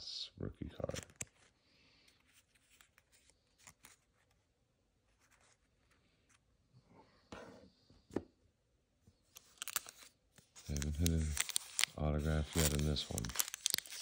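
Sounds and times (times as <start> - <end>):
cardboard cards rustling: 0.8 - 4.5, 9.3 - 14.0.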